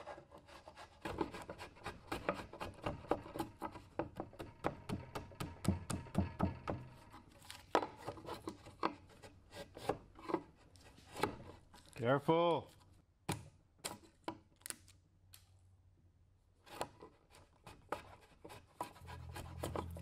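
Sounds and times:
chisel splitting wood: 0.4 - 11.6, 16.7 - 20.0.

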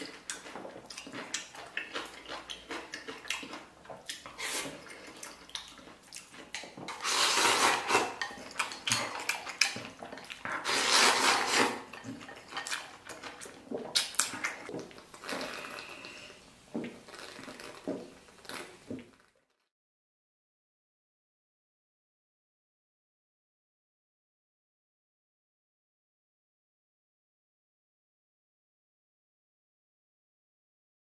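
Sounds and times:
chewing: 0.0 - 19.3
loud slurping: 4.2 - 5.2, 6.9 - 8.7, 10.4 - 11.9.

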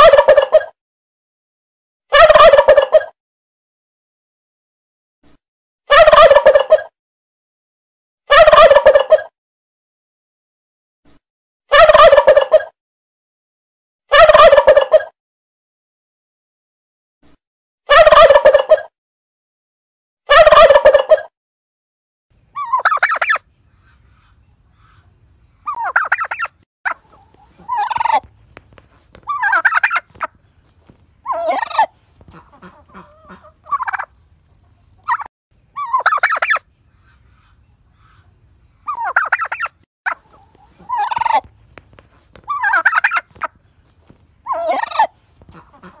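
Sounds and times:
turkey gobbling: 0.0 - 0.7, 2.1 - 3.1, 5.9 - 6.9, 8.3 - 9.3, 11.7 - 12.7, 14.1 - 15.1, 17.9 - 18.9, 20.3 - 21.3, 22.6 - 23.4, 25.7 - 36.7, 38.8 - 46.0.

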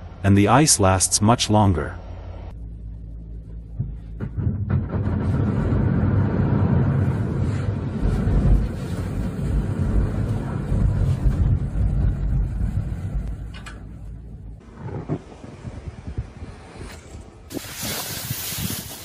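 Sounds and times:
vehicle engine humming: 0.0 - 17.5
snow sliding off a roof: 5.1 - 13.2, 15.0 - 19.0.

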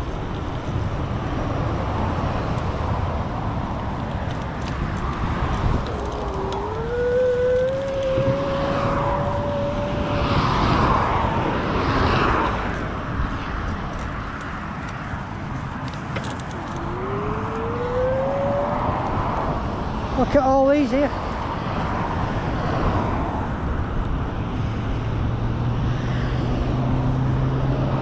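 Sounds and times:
wind on microphone: 0.0 - 28.0
electric bike motor whining: 4.3 - 11.6, 15.8 - 19.9.

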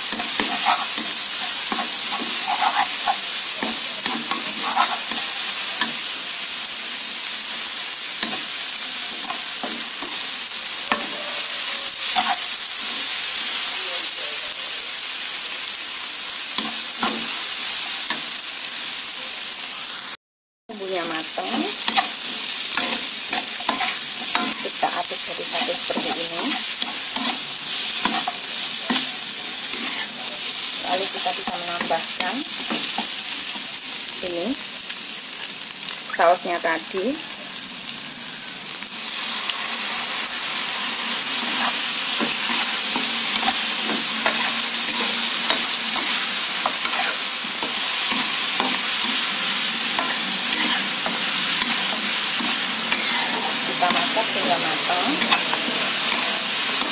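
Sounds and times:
food sizzling in hot oil: 0.0 - 56.9
metal spatula scraping a wok: 8.1 - 12.4, 21.3 - 30.7, 39.1 - 56.9.

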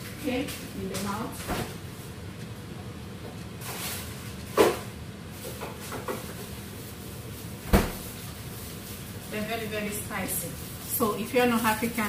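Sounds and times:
fridge door shutting thud: 7.6 - 8.0.

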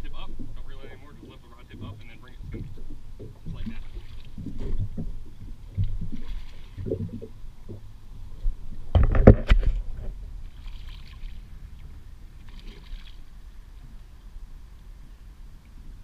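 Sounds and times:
low rumbling thumps: 0.0 - 10.6
water slapping against boat hull: 0.1 - 7.9, 8.9 - 13.2
sharp knocks on boat: 8.9 - 9.8.

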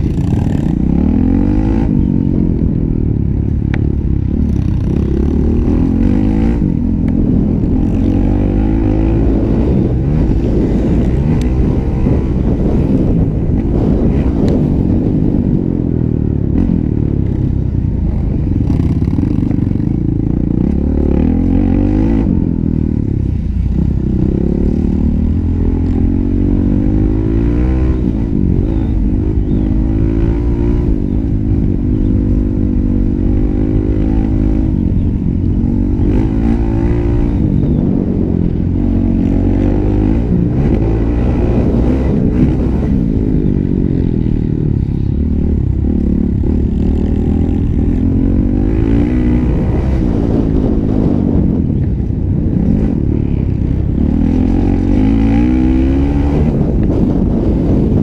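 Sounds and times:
motocross bike engine revving: 0.0 - 2.4, 35.6 - 51.6.

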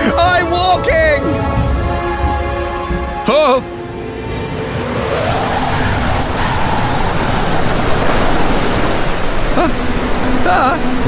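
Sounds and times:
wind rushing: 2.4 - 11.0
waves surging: 2.7 - 11.0.

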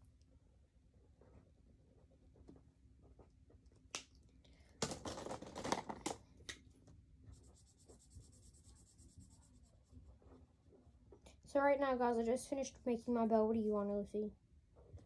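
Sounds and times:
marker scratching on paper: 7.3 - 10.4.

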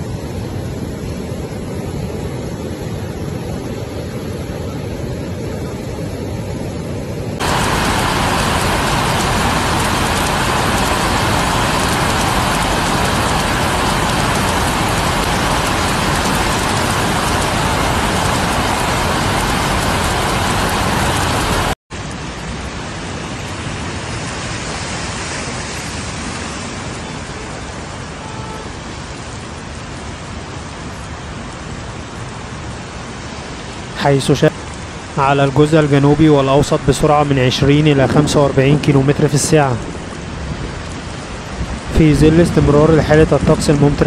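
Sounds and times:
cars driving through water: 7.4 - 21.7
flood water rushing: 7.4 - 44.0
heavy rain on pavement: 7.4 - 44.0.

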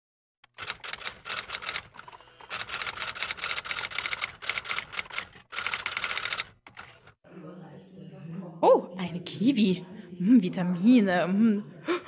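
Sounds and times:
typewriter keys clacking: 0.5 - 7.1.

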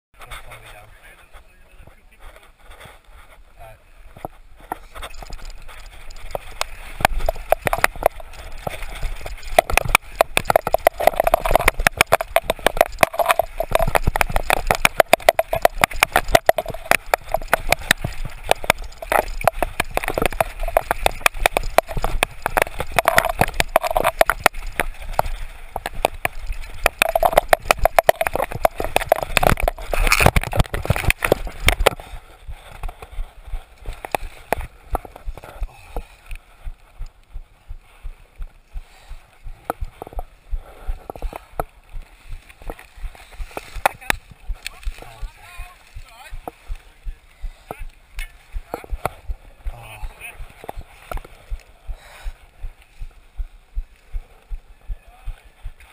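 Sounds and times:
tyres on loose dirt: 0.2 - 55.9
mountain bike rattling: 2.2 - 37.0, 37.8 - 53.1.

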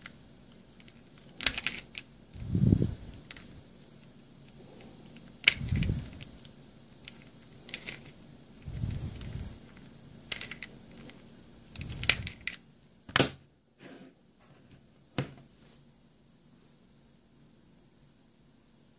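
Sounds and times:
plastic puzzle clicking: 0.5 - 2.1, 3.1 - 3.5, 4.4 - 8.2, 8.8 - 13.3.

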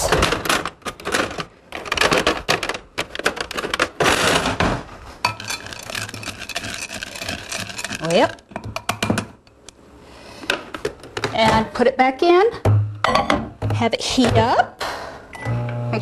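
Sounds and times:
kitchen utensils clattering: 0.0 - 9.4
spatula scraping glass bowl: 5.3 - 8.4.

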